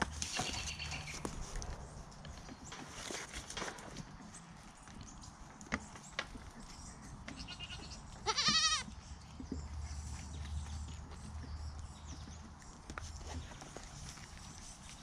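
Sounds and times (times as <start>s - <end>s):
goat kid bleating: 0.2s - 1.3s, 7.4s - 8.9s.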